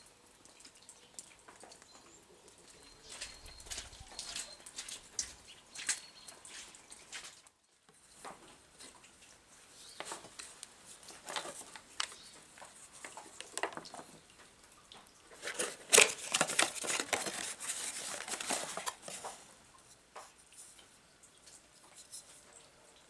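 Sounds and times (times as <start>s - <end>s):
cardboard scraping and rustling: 10.0s - 13.8s, 15.3s - 19.5s.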